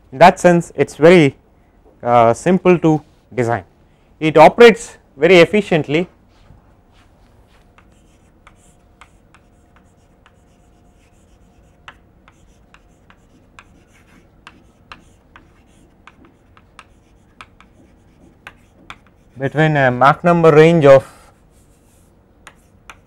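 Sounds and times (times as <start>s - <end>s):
faint steady hum: 0.0s - 23.0s
chalk scratching on blackboard: 6.9s - 19.9s, 21.4s - 23.0s.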